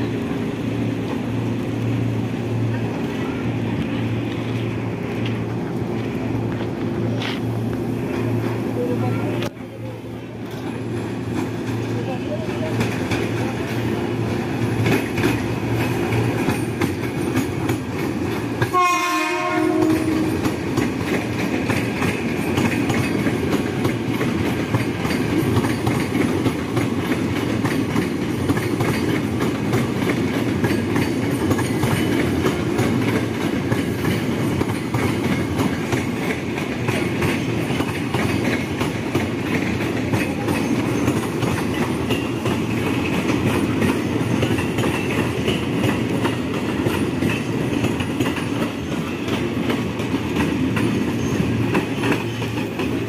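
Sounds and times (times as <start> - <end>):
rail clatter: 0.0 - 53.0
train rumbling past: 0.0 - 53.0
train horn blast: 18.7 - 20.4.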